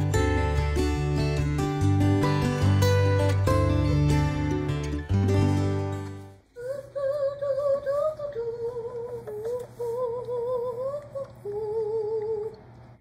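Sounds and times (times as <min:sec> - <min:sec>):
woman humming: 0:06.6 - 0:12.7.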